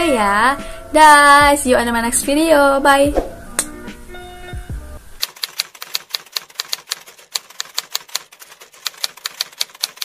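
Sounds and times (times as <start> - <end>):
typewriter keystroke clicks: 5.2 - 10.0.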